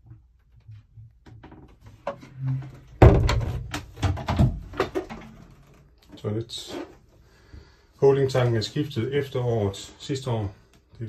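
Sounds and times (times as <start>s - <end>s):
door rattling and handling: 3.0s - 5.5s.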